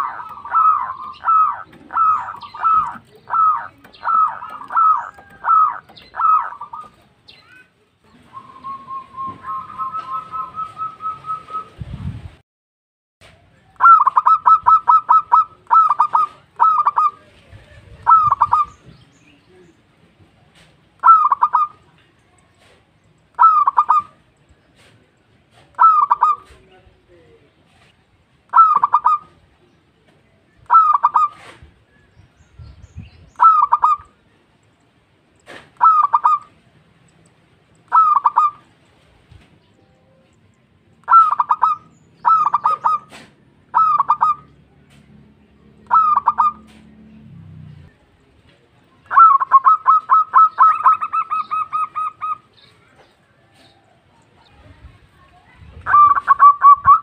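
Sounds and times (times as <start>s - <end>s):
dove cooing: 0.0s - 7.6s, 13.8s - 18.9s, 21.0s - 21.8s, 23.4s - 24.2s, 25.5s - 26.7s, 28.5s - 29.4s, 30.6s - 31.7s, 33.4s - 34.2s, 35.8s - 36.6s, 37.9s - 38.7s, 41.0s - 44.6s, 45.8s - 47.2s, 49.1s - 52.5s, 55.8s - 57.0s.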